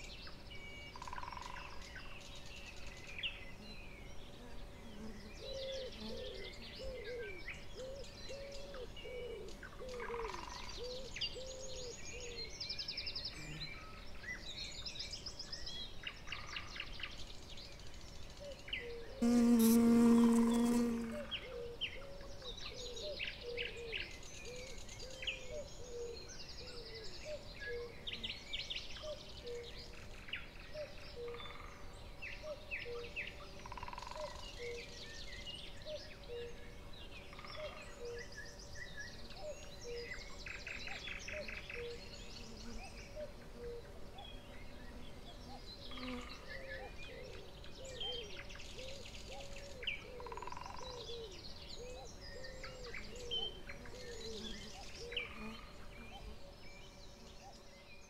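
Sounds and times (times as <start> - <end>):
birds chirping and trilling: 18.6 - 58.0.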